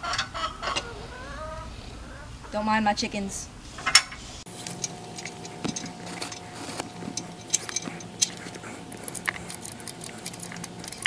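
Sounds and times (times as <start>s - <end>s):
strap hardware clicking and rattling: 3.8s - 11.0s.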